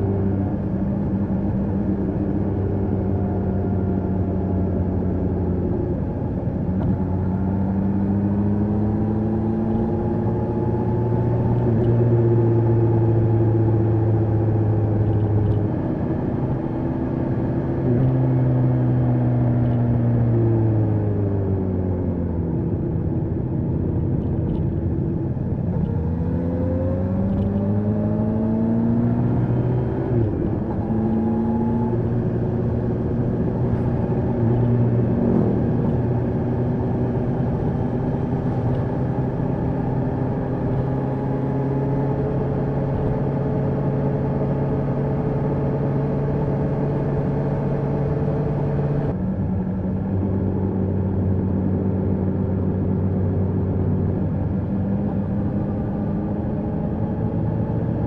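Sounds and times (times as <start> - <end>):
motorcycle engine while riding: 0.0 - 58.0.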